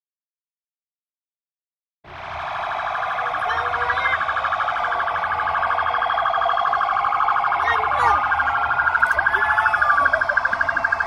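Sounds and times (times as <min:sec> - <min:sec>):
siren warbling rapidly: 0:02.2 - 0:11.0.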